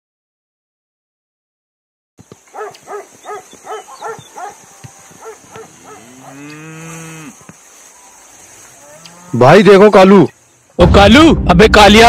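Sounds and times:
dog barking: 2.5 - 4.6, 5.2 - 6.4
cow mooing: 3.7 - 7.4, 8.8 - 9.5.

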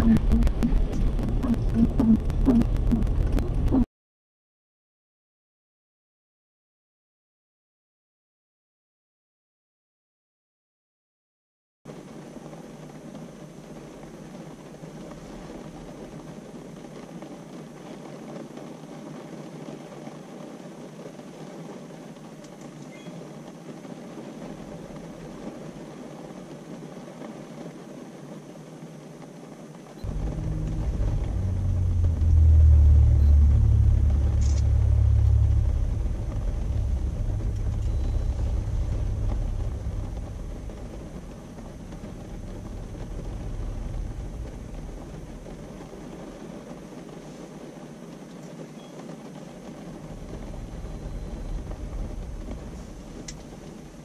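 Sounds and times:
car interior noise in heavy rain: 0.0 - 3.8, 11.9 - 54.0
heavy low rumble: 0.0 - 3.9, 30.0 - 47.2, 49.4 - 54.0.

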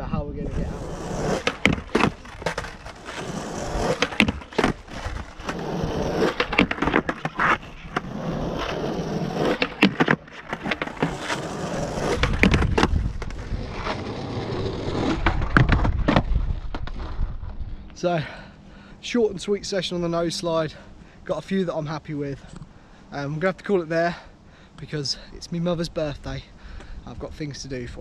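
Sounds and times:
skateboard wheels rolling on asphalt: 0.0 - 22.4
skateboard clacks and knocks: 1.2 - 7.6.

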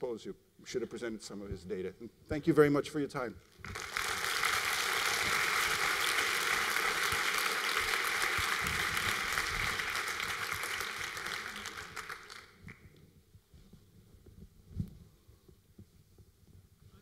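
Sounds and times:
audience applauding: 3.6 - 12.8.

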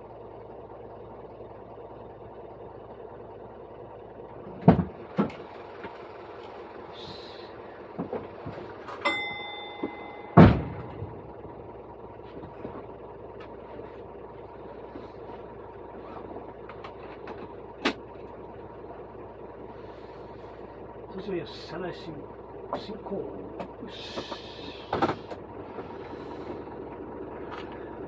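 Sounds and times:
engine idling: 0.0 - 28.0
short beep: 9.0 - 10.5.

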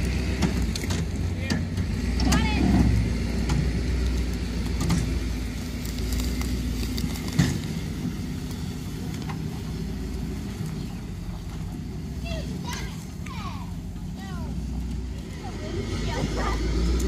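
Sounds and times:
car engine running at low revs: 0.0 - 17.0
car rolling over dry leaves: 0.0 - 17.0
twigs snapping: 3.9 - 7.8.

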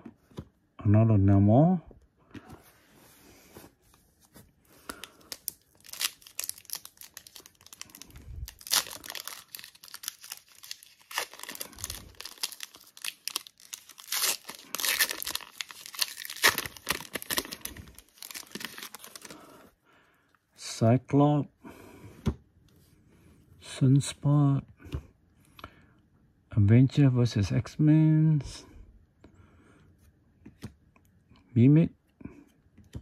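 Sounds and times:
card pack wrapper tearing: 4.9 - 19.4
wrapper crinkling: 4.9 - 19.4.

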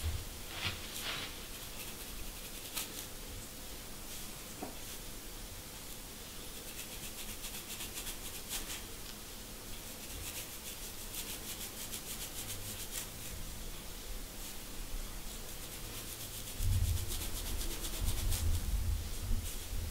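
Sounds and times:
comb scratching scalp: 0.6 - 3.1, 6.5 - 8.8, 9.8 - 13.4, 15.3 - 18.6, 19.4 - 19.9.

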